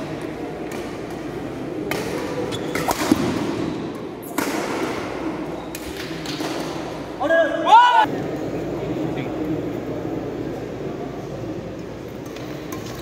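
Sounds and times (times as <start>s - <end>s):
murmur of crowd in hall: 0.0s - 13.0s
rackets hitting shuttlecock: 0.1s - 7.1s.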